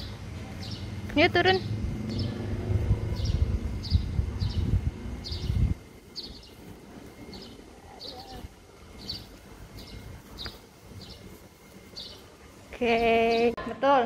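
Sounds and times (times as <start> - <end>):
low rumble: 0.0 - 10.2
small bird chirping: 0.0 - 13.6.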